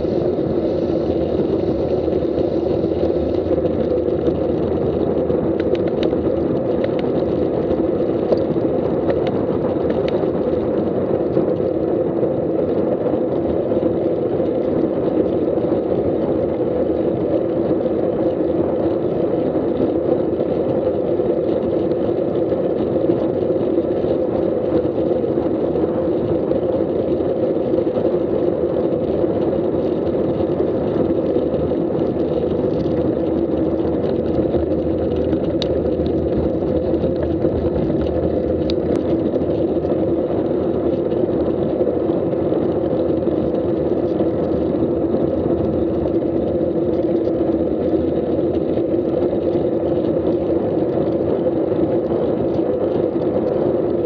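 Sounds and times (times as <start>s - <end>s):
road rumble: 0.0s - 17.2s, 28.5s - 50.3s
wind rush on microphone: 0.0s - 54.0s.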